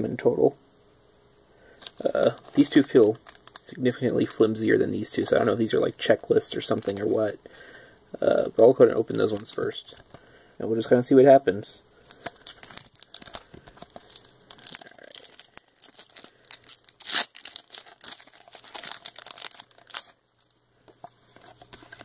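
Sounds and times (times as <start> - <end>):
foil wrapper tearing and crinkling: 1.8 - 4.5, 12.1 - 20.6.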